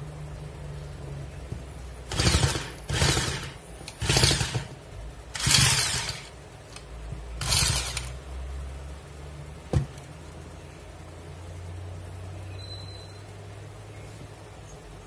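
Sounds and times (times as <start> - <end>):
electric drill bursts: 2.1 - 6.4, 7.4 - 8.1
wooden saw mechanism rattling: 2.1 - 8.1.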